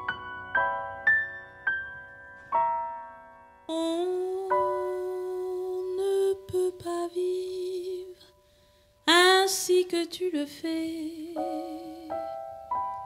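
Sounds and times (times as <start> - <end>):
grand piano: 0.0 - 13.0
woman singing jazz: 3.7 - 8.3, 9.1 - 12.6.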